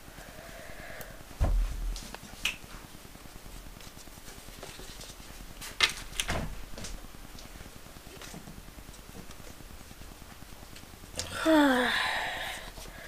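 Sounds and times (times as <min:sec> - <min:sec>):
dull bump: 0:01.4 - 0:02.0.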